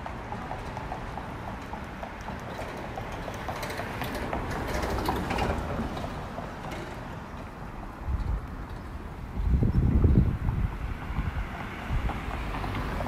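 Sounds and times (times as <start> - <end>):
street traffic: 0.0 - 13.0
vehicle passing: 9.0 - 13.0.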